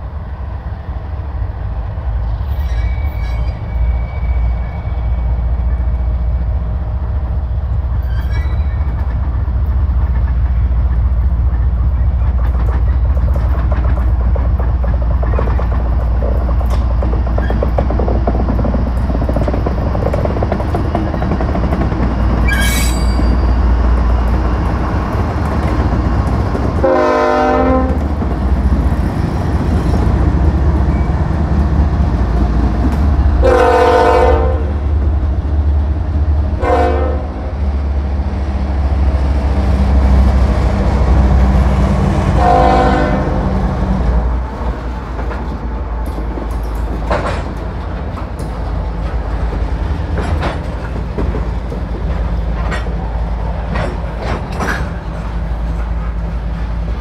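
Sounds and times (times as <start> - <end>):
diesel locomotives droning: 0.0 - 57.0
wheels clicking over rail joints: 8.1 - 26.8, 44.9 - 56.3
locomotive air horn blasts: 26.8 - 28.0, 33.4 - 34.8, 36.6 - 37.4, 42.4 - 43.4.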